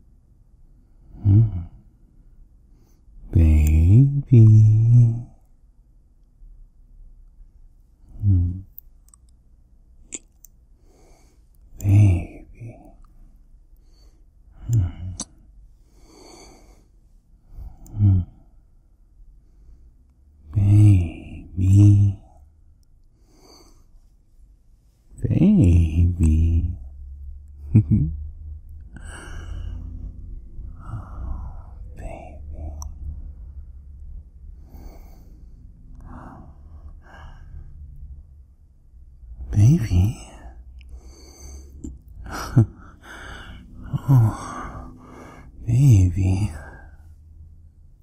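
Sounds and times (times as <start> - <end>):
steady low hum: 0.0 - 48.0
man calling out softly: 3.3 - 5.4, 11.8 - 13.0, 20.5 - 22.3, 25.2 - 26.9, 39.4 - 40.6, 45.6 - 46.9
man breathing: 10.7 - 12.8, 13.8 - 18.7, 23.2 - 24.2, 28.9 - 32.8, 34.4 - 38.0, 40.0 - 47.3
man sighing: 40.1 - 47.0.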